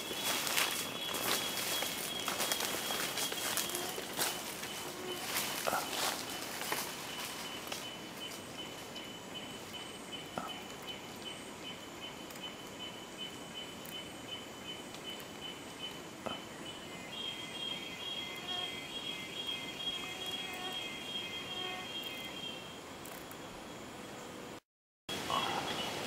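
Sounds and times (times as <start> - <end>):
insects droning: 0.0 - 26.0
pulsing high insect call: 0.0 - 26.0.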